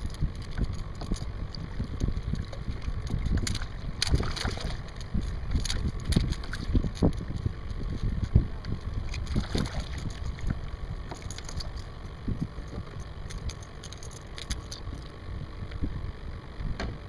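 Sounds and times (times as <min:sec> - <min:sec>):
wind buffeting microphone: 0:00.0 - 0:13.6
fishing reel clicks and rattles: 0:11.1 - 0:11.8, 0:12.7 - 0:14.9.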